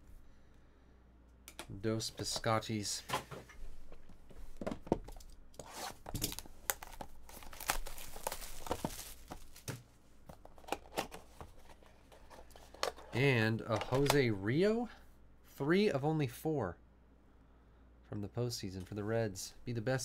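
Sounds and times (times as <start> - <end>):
plastic wrapper tearing and crinkling: 6.1 - 9.8.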